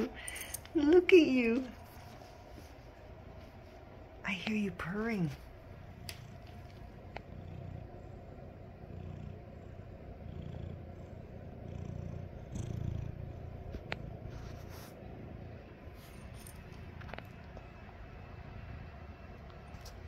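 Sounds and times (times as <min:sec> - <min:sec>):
cat purring: 0:04.3 - 0:20.0.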